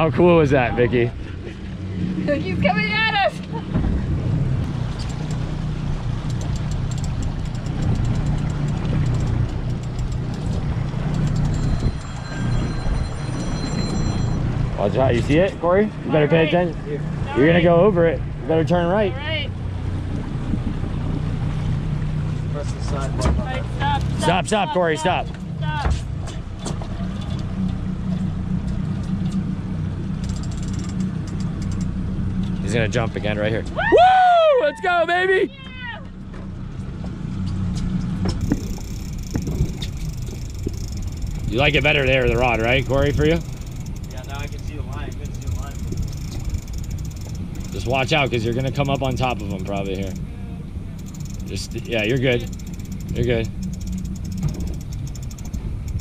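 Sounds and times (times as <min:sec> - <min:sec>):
outboard motors droning: 0:00.0 - 0:56.0
rushing wind and water: 0:00.0 - 0:56.0.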